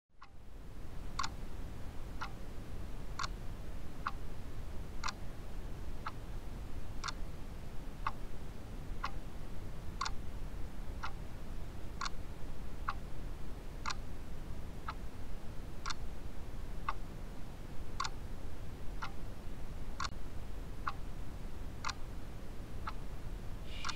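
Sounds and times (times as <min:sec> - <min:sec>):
low background rumble: 0:00.2 - 0:23.9
clock ticking: 0:01.2 - 0:01.4, 0:05.0 - 0:05.2, 0:18.0 - 0:18.2, 0:21.8 - 0:22.0.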